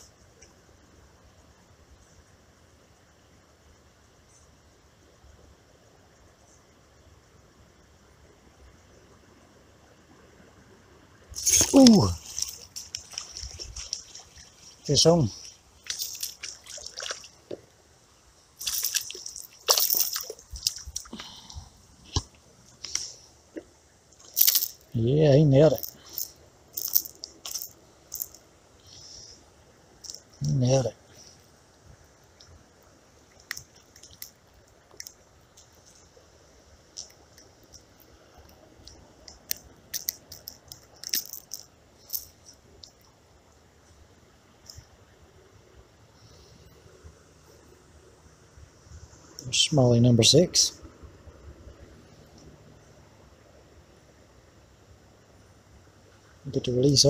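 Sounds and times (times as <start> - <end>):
fish splashing at water surface: 11.4 - 17.5, 18.6 - 21.4
rattling clicks: 38.8 - 43.0.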